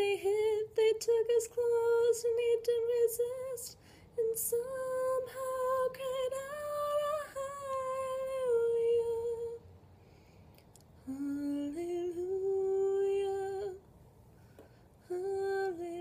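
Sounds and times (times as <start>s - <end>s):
woman singing unaccompanied: 0.0s - 9.6s, 11.0s - 13.8s, 15.0s - 16.0s.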